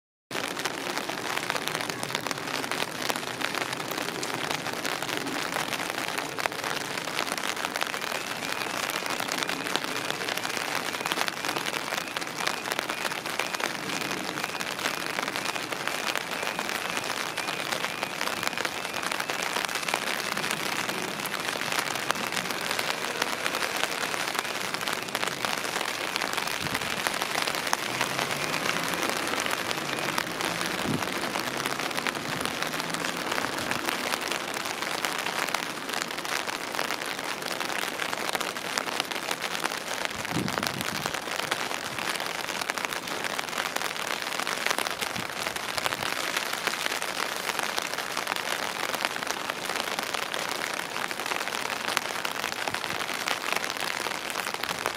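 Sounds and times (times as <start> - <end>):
rain hiss: 0.3 - 54.9.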